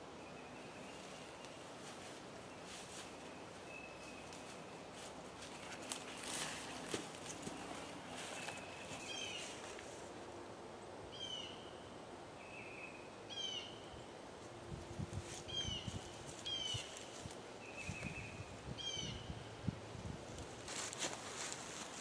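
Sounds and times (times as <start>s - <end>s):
bird calling: 11.1s - 13.9s, 15.5s - 17.1s.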